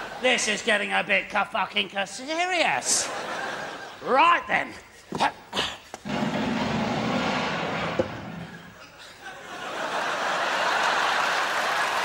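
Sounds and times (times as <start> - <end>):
audience laughing: 0.0 - 0.6, 2.8 - 4.2, 8.1 - 12.0
audience applause: 9.9 - 12.0.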